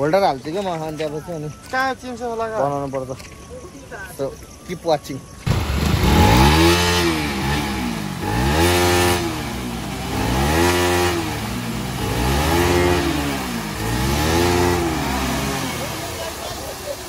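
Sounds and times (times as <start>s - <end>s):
motorcycle engine revving: 5.4s - 17.0s.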